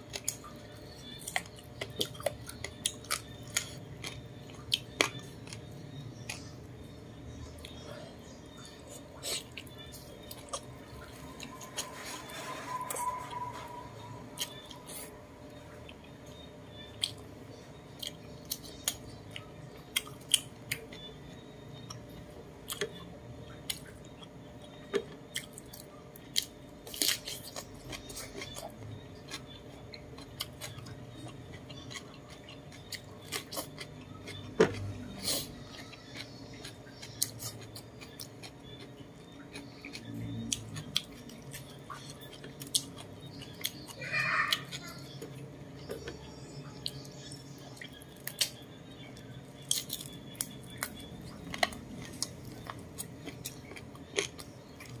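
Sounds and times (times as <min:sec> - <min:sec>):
chewing with mouth smacks: 0:00.0 - 0:13.8, 0:14.4 - 0:17.3, 0:17.9 - 0:55.0.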